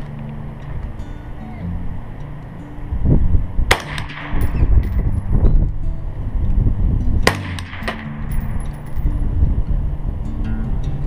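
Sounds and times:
suppressed rifle shots: 3.7s - 5.1s, 7.2s - 8.8s.

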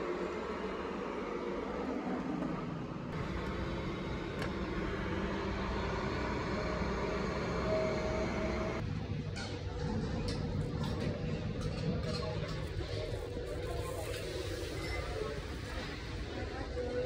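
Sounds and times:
road traffic hum: 0.6s - 9.0s.

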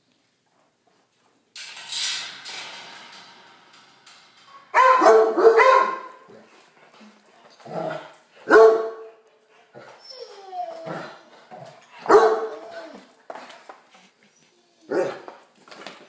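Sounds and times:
clattering noise: 1.5s - 8.4s
dog barking: 4.8s - 6.2s, 8.5s - 9.1s, 12.0s - 12.6s, 14.9s - 15.2s.

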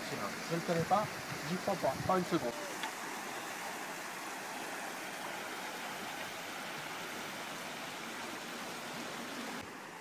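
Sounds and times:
river water rushing: 0.0s - 10.0s.

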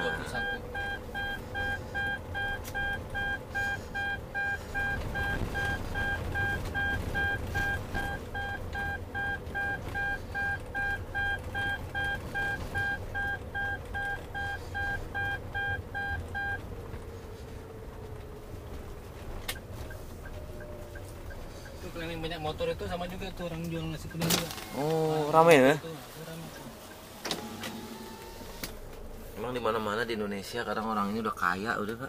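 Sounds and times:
short high-pitched warning beeps: 0.0s - 16.6s
low engine and road rumble: 0.0s - 32.0s.

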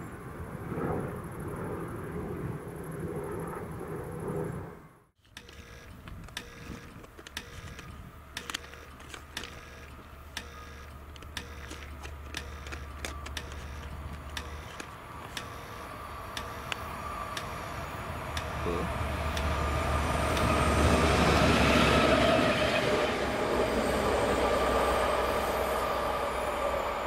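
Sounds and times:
sharp clicks: 5.2s - 17.7s, 18.3s - 20.6s
steady low hum: 5.4s - 22.0s.

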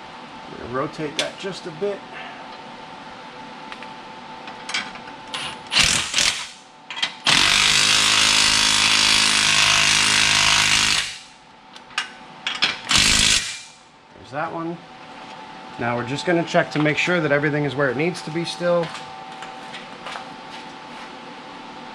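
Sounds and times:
impact wrench hammering: 7.3s - 11.4s, 12.9s - 13.8s.

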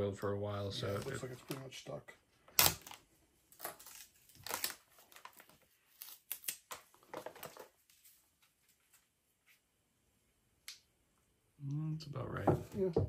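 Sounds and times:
packaging crinkling and rustling: 2.6s - 8.2s.

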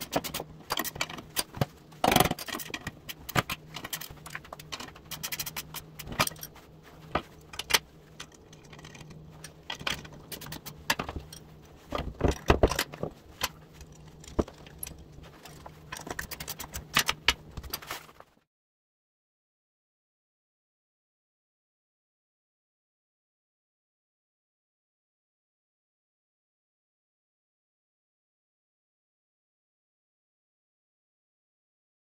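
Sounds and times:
metal hardware clinking: 0.0s - 6.5s
faint low hum: 0.0s - 18.3s.

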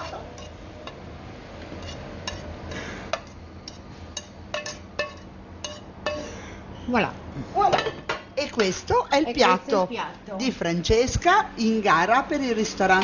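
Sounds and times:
metal spoon clinking on frying pan: 3.2s - 6.3s.

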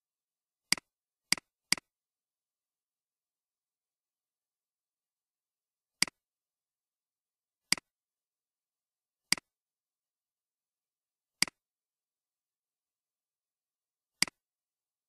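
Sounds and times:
computer mouse clicks: 7.7s - 7.9s.

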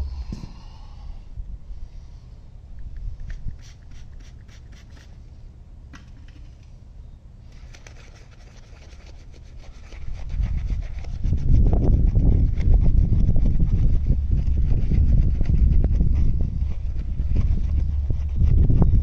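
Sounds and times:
low rumble: 0.0s - 3.6s, 10.0s - 19.0s
brush scrubbing a wheel: 3.4s - 5.2s, 7.5s - 19.0s.

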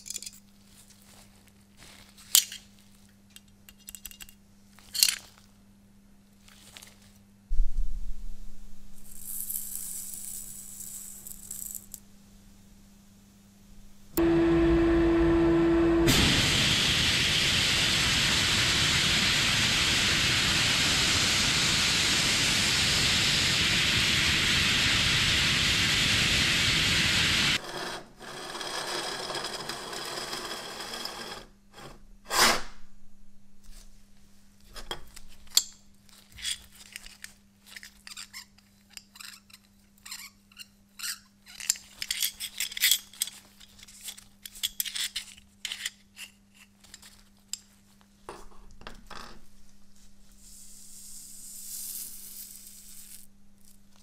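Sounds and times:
abrasive blasting hiss: 14.2s - 27.6s
metallic clicks and scrapes: 34.8s - 47.8s.

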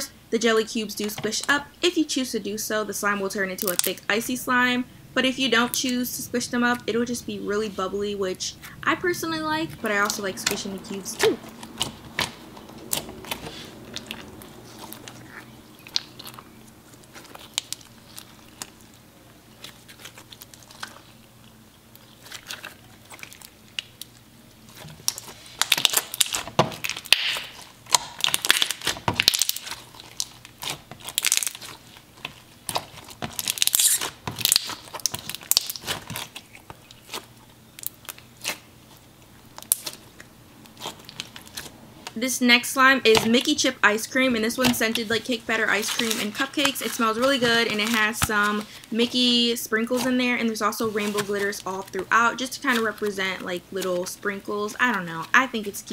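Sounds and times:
slime squelching and popping: 9.8s - 19.0s, 19.6s - 38.7s, 39.6s - 41.7s.

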